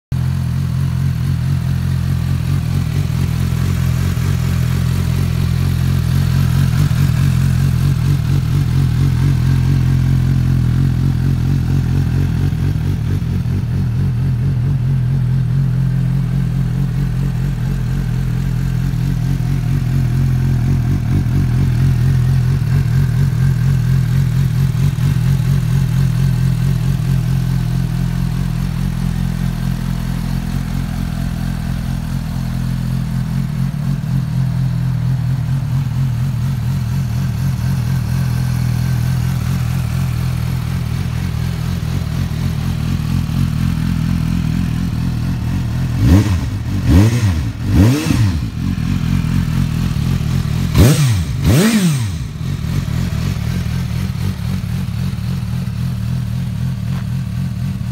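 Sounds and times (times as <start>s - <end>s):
motorcycle engine idling: 0.1s - 57.9s.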